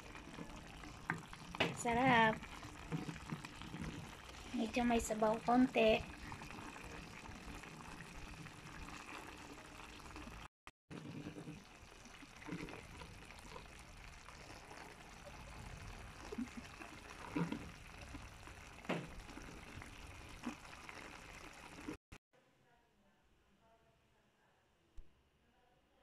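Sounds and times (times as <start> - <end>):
stew simmering: 0.0 - 22.0
soft bubble pops: 14.3 - 21.2.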